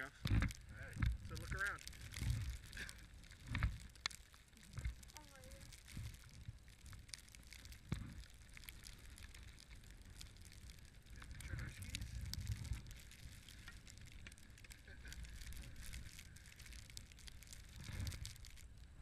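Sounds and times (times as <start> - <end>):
wind buffeting microphone: 4.6 - 19.0.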